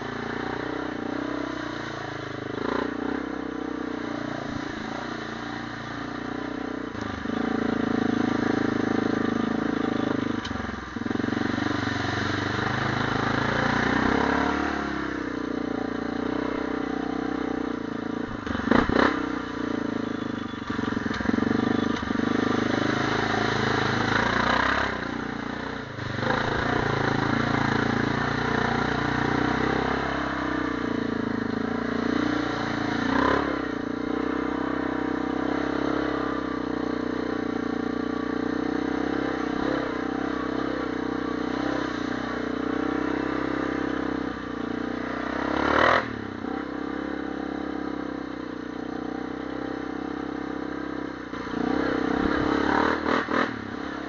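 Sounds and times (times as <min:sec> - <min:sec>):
atv engine revving: 0:00.0 - 0:54.0.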